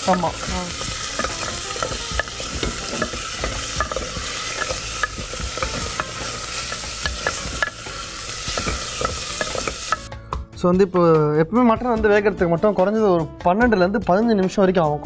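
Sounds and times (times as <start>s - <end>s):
meat sizzling in hot oil: 0.0s - 10.1s
spatula scraping pot: 0.0s - 10.1s.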